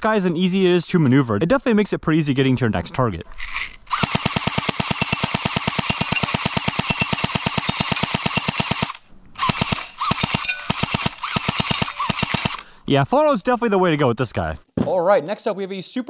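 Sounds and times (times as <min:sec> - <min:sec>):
airsoft gun firing bursts: 0:03.9 - 0:12.7.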